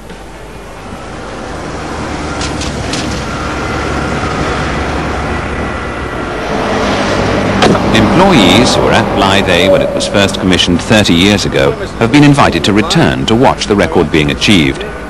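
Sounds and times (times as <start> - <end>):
car engine approaching: 0.8 - 12.0.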